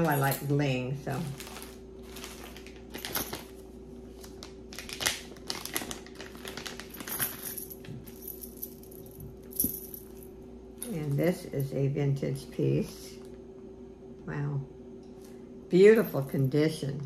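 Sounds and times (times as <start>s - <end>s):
metal jewelry clinking: 0.0s - 0.6s, 6.9s - 11.7s.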